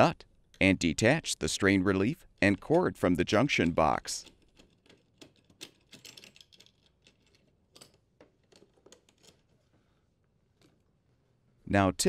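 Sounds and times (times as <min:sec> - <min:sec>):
faint clicks and rustles of wires: 0:02.2 - 0:11.3.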